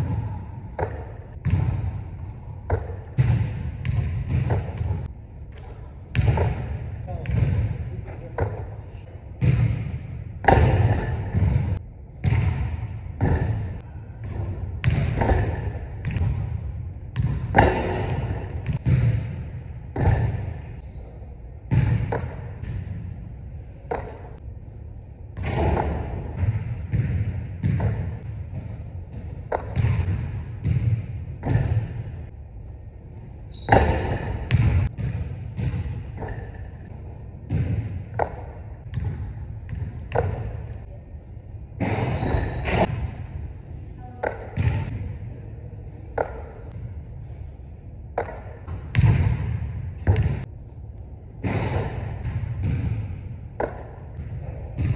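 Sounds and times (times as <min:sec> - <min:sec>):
basketball bouncing on hardwood floor: 0:00.0 - 0:02.0, 0:02.7 - 0:07.7, 0:09.4 - 0:13.6, 0:14.2 - 0:16.5, 0:17.2 - 0:19.4, 0:25.4 - 0:32.0, 0:33.5 - 0:36.8, 0:37.5 - 0:40.6, 0:48.2 - 0:50.4, 0:51.5 - 0:54.9
basketball striking rim and backboard: 0:00.0 - 0:08.6, 0:09.4 - 0:21.0, 0:21.7 - 0:23.1, 0:25.4 - 0:40.7, 0:41.8 - 0:43.4, 0:48.2 - 0:50.5, 0:51.4 - 0:54.9.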